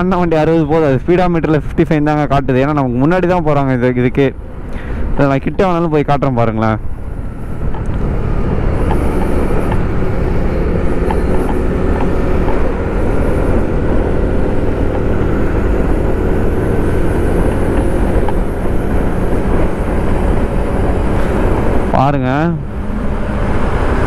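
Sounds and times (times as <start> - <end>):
moped engine cruising: 6.4 - 24.0.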